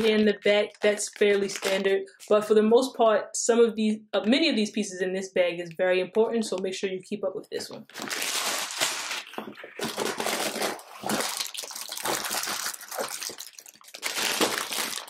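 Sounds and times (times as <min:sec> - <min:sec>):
plastic bag crinkling: 0:00.0 - 0:02.4, 0:07.8 - 0:15.0.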